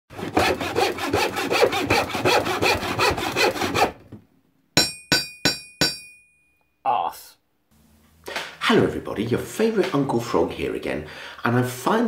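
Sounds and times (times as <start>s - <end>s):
hand saw cutting: 0.1s - 4.0s.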